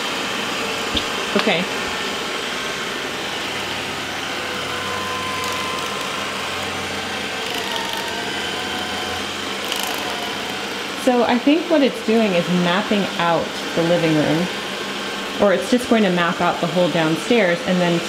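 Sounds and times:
robot vacuum whirring: 0:01.8 - 0:14.5.

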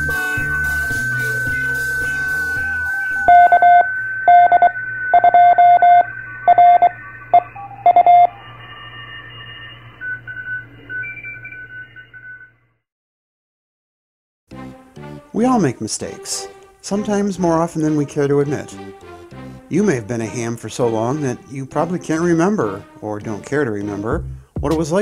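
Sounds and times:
faint tones: 0:00.0 - 0:11.5
intro music: 0:00.0 - 0:11.7, 0:14.5 - 0:25.0
morse code beeps: 0:00.0 - 0:12.6.

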